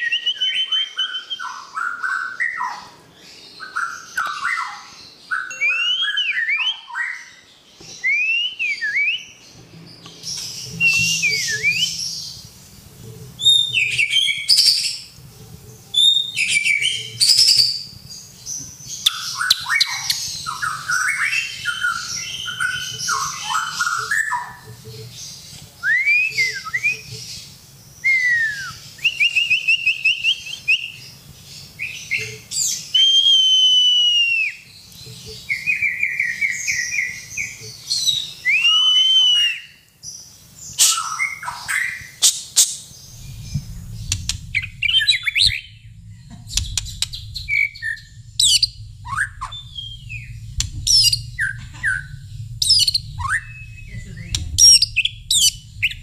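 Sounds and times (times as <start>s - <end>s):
bird song with whistled notes: 0.0s - 56.0s
low steady hum: 9.4s - 29.2s, 42.8s - 56.0s.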